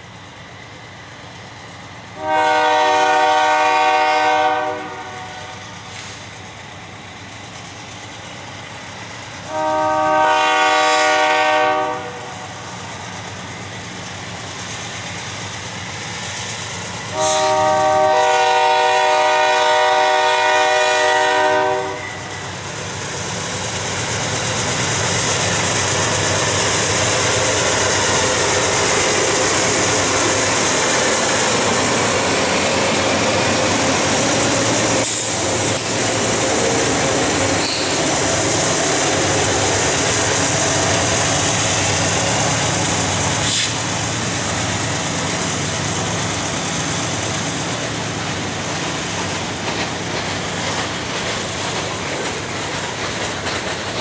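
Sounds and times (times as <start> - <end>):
freight train rumble and wheel noise: 0.0 - 54.0
locomotive air horn blasts: 2.2 - 5.6, 9.5 - 12.4, 17.1 - 22.3.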